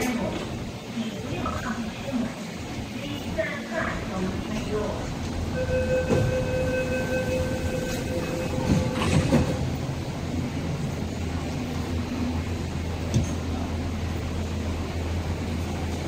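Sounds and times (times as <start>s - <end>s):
train humming: 0.0s - 16.0s
door-closing warning tone: 5.5s - 9.6s.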